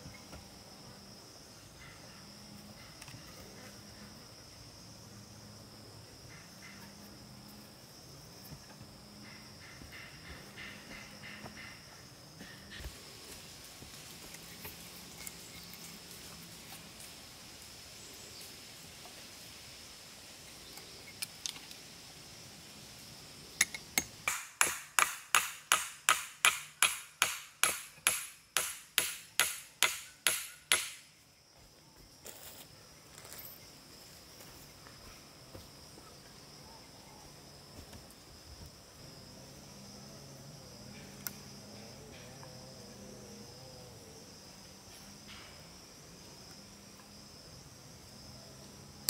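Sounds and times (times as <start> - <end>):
hatchet striking wood: 24.0 - 31.0.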